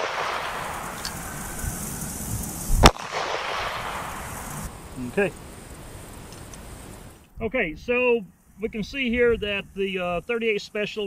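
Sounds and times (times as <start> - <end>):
revolver gunshot echoing: 0.0 - 4.8.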